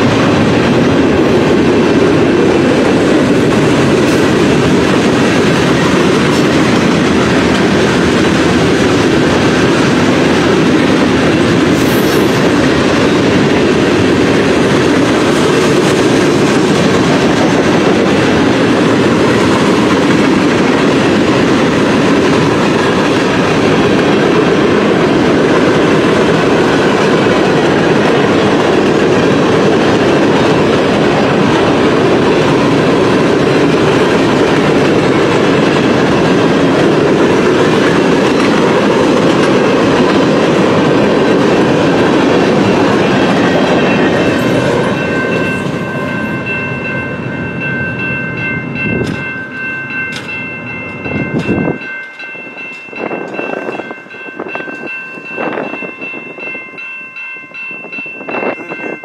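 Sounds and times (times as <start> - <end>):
freight train cars rumbling past: 0.0 - 59.0
grade crossing bells ringing: 12.4 - 59.0.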